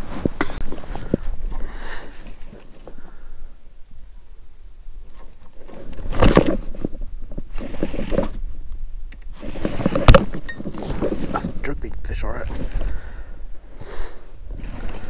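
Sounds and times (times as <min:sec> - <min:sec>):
rod and reel rubbing and scraping: 0:05.0 - 0:08.4, 0:09.3 - 0:15.0.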